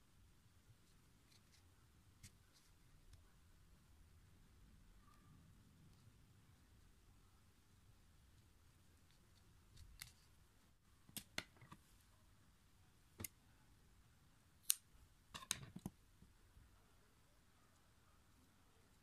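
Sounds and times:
scissors cutting yarn: 14.6 - 15.9.

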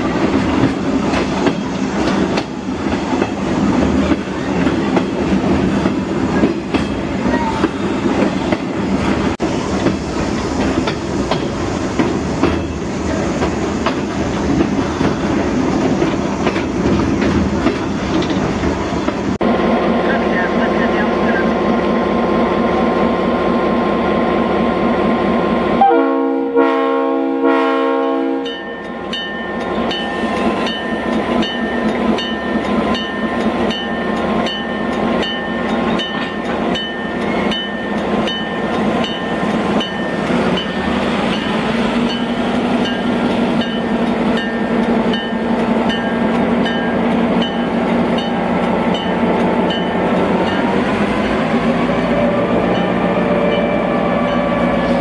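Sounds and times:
locomotive horn blast: 25.8 - 28.6
diesel locomotive engine running: 28.9 - 55.0.

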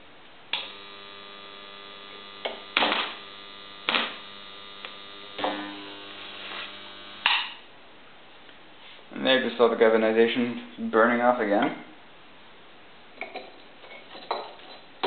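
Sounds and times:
crackling and sizzling nail: 0.5 - 7.6
electrical snap: 0.5 - 7.6
transformer humming loudly: 0.6 - 7.6.

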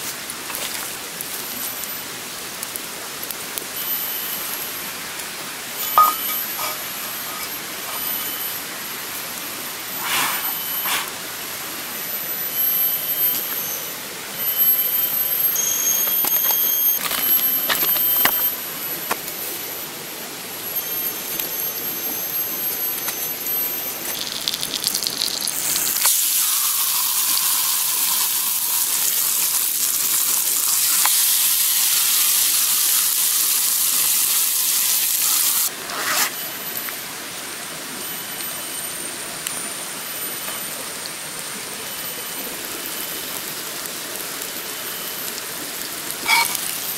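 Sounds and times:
fish sizzling in hot oil: 20.8 - 35.7, 43.2 - 46.9.

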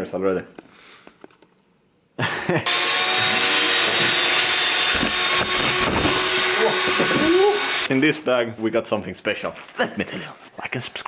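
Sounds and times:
electric air blower running: 2.6 - 7.9.

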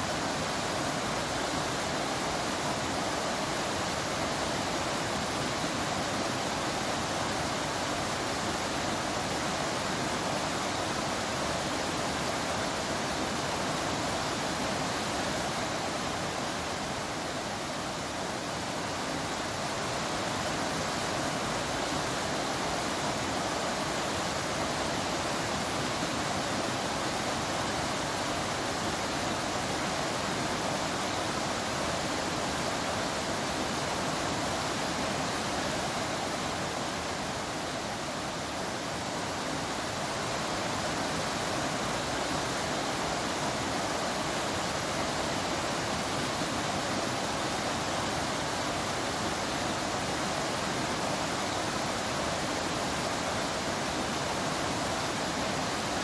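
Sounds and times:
rain falling: 0.0 - 56.0
stream running over stones: 0.0 - 56.0.

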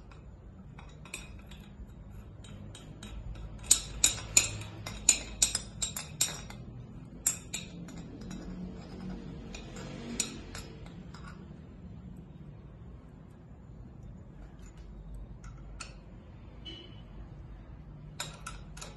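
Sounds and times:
wrench clicking on bolts: 0.0 - 11.6, 14.4 - 16.2, 18.0 - 18.9.

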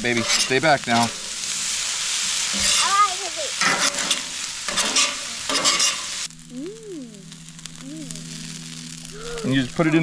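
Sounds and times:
metal spatula scraping griddle: 0.0 - 3.0, 3.6 - 6.3
rice sizzling on a griddle: 0.0 - 10.0.

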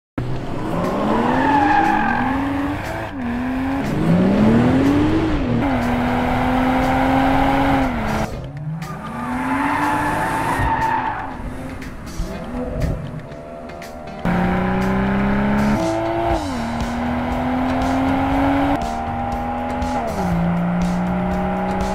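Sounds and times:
car engine revving hard: 0.5 - 8.3, 14.2 - 21.9.

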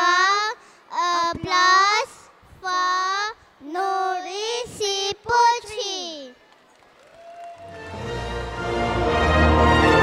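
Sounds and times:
child singing into microphone: 0.0 - 6.4.

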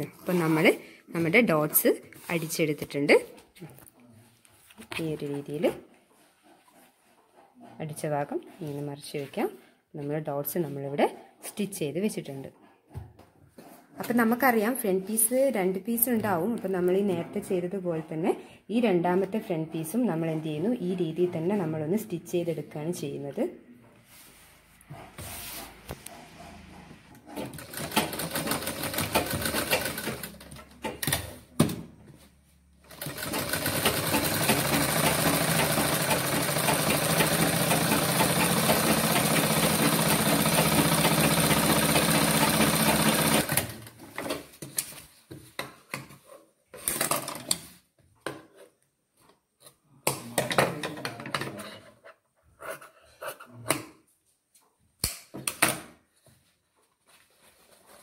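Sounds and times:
sewing machine stitching: 27.2 - 31.5, 32.8 - 43.9.

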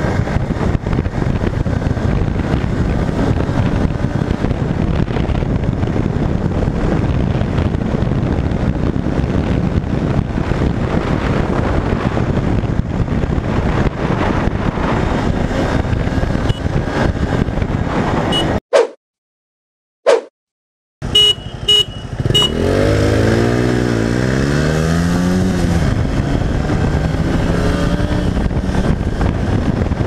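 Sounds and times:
motorcycle engine cruising: 0.0 - 18.6, 21.0 - 30.0
wind buffeting microphone: 0.0 - 18.6, 21.2 - 30.0.

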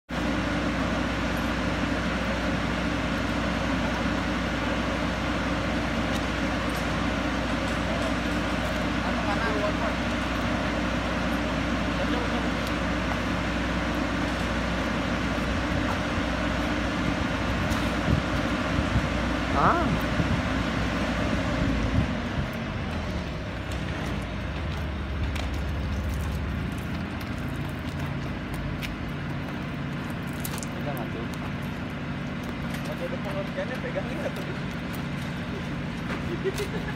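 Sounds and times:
turboprop engine droning: 0.1 - 36.9.

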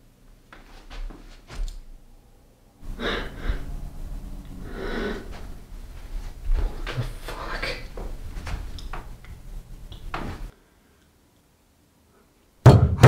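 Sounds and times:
person breathing hard and gasping: 2.8 - 5.7.

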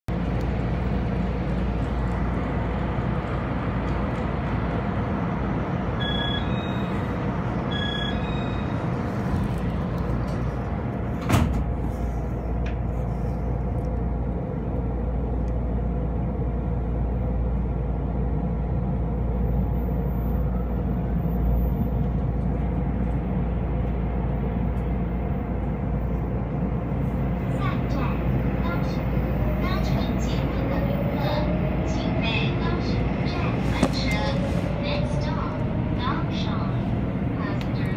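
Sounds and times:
train interior hum and rumble: 0.1 - 37.9
short electronic beeps: 6.0 - 6.9, 7.7 - 8.8.

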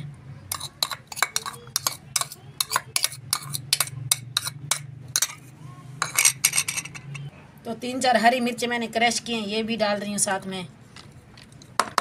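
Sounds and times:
spoon clinking against a dish: 0.5 - 7.3.

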